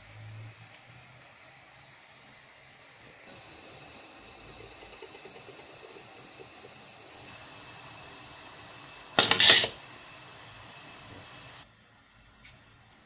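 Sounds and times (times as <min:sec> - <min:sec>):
faint steady hum: 0:00.0 - 0:13.0
wire stripping machine burst: 0:09.1 - 0:09.8.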